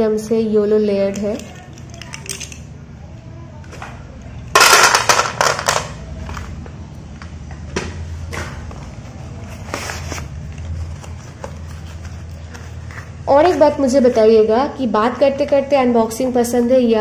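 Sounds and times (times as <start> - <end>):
paper packets rustling and clattering: 8.8 - 13.1.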